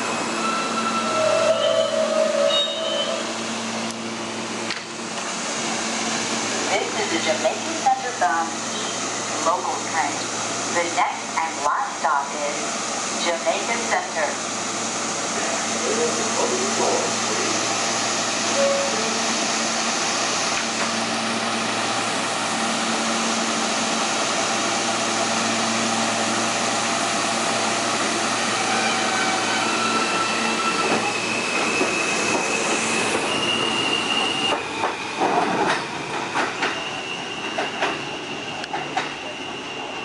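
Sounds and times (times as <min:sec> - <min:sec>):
subway train accelerating: 0:00.0 - 0:40.0
high wheel squeal: 0:00.4 - 0:03.3, 0:28.4 - 0:34.6, 0:36.4 - 0:40.0.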